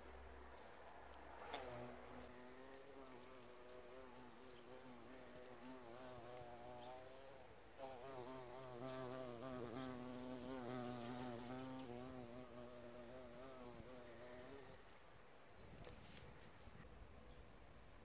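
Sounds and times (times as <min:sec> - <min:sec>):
bee buzzing in flight: 0:01.5 - 0:14.8.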